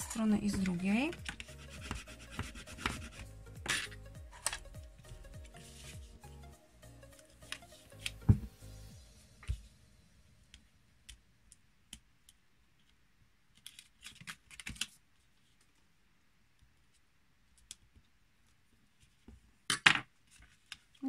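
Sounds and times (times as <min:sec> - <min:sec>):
paper crinkling: 0:13.5 - 0:15.8.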